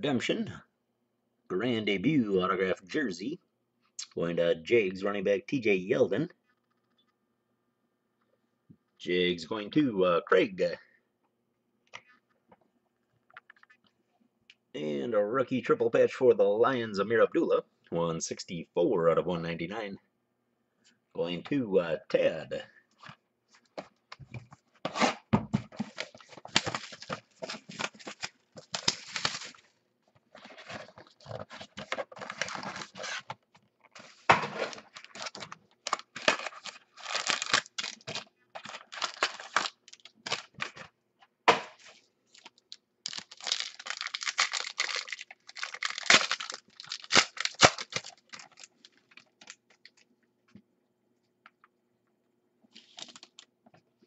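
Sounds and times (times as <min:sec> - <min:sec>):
plastic wrappers tearing and crinkling: 0:25.9 - 0:29.7, 0:30.6 - 0:33.3, 0:34.5 - 0:40.8, 0:42.3 - 0:50.0, 0:52.8 - 0:53.5.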